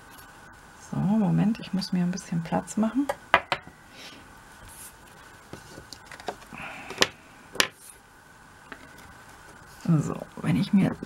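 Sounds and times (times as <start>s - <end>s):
paper rustling and sliding: 4.6s - 6.5s.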